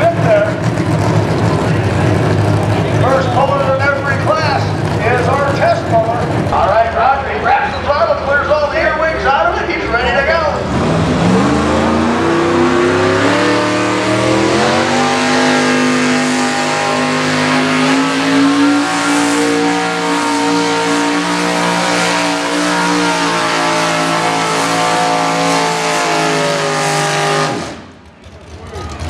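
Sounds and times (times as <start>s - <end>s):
tractor engine at high revs: 10.6s - 29.0s.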